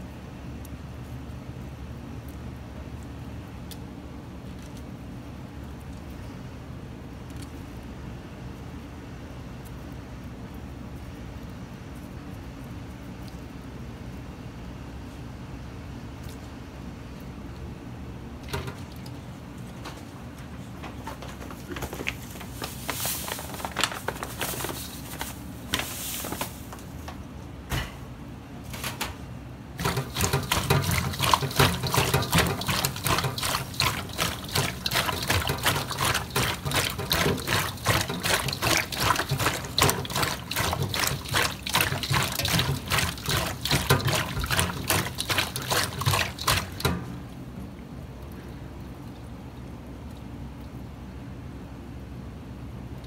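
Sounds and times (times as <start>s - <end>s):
handling sounds: 19.6s - 27.2s
hands squelching slimy fish: 29.8s - 46.9s.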